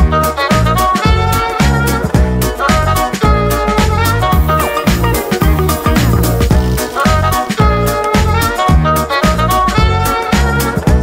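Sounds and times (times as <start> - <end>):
upbeat music with steady beat: 2.1 - 9.9.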